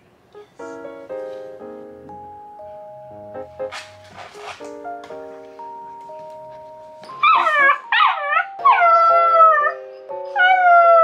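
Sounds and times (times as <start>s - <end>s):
puppy crying: 7.1s - 11.0s
puppy howling: 7.2s - 9.8s, 10.4s - 11.0s.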